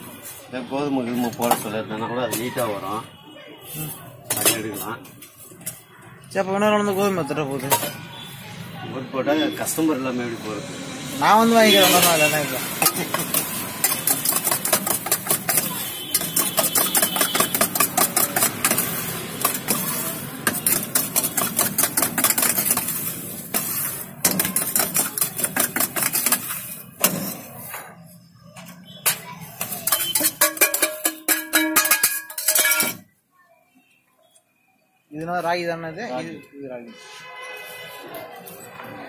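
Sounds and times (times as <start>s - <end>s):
spoon scraping metal saucepan: 3.6s - 5.9s, 7.0s - 8.3s, 11.4s - 28.1s, 28.7s - 33.1s.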